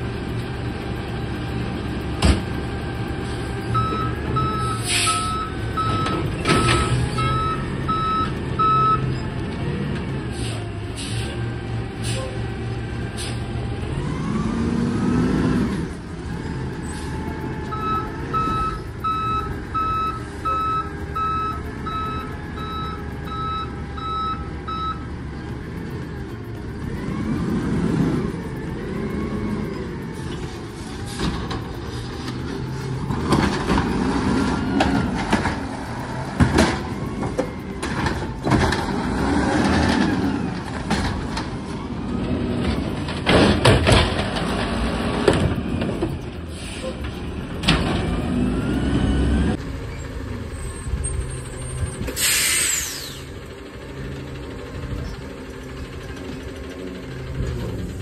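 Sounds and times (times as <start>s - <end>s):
garbage truck engine running: 0.0s - 58.0s
carts clanking and banging: 1.9s - 11.2s, 26.9s - 52.3s.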